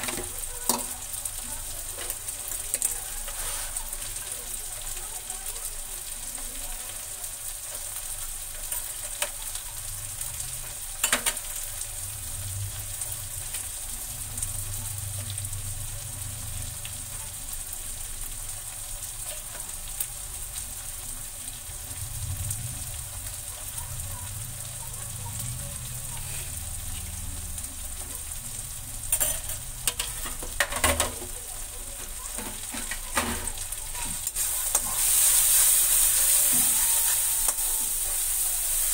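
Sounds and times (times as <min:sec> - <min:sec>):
vegetables sizzling in pan: 0:00.0 - 0:38.9
spatula scraping pan: 0:02.8 - 0:04.1, 0:26.2 - 0:26.6, 0:32.0 - 0:38.9.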